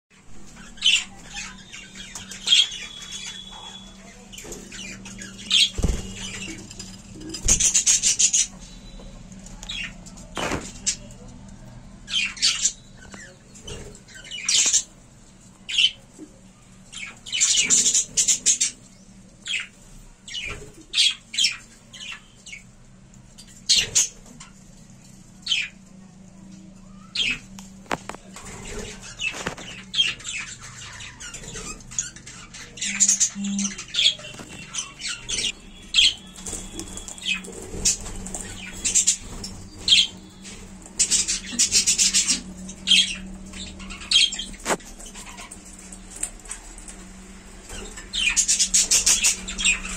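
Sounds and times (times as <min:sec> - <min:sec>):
budgerigars chirping: 0:00.6 - 0:06.6, 0:41.0 - 0:45.8, 0:47.7 - 0:49.9.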